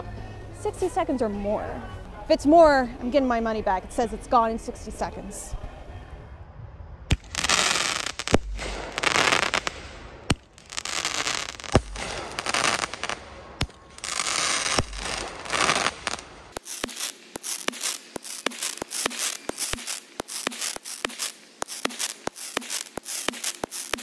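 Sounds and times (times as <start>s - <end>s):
crackling firework bursts: 7.1s - 24.0s.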